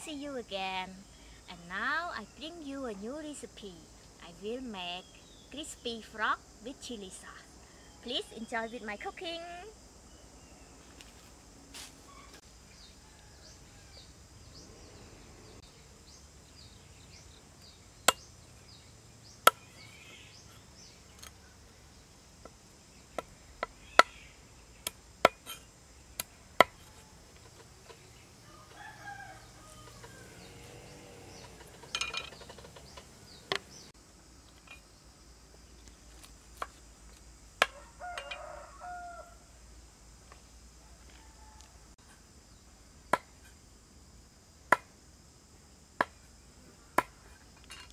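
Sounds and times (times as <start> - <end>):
insects droning: 0.0 - 47.9
rooster crowing: 12.2 - 14.3, 28.4 - 31.9, 37.7 - 39.5, 40.8 - 42.0.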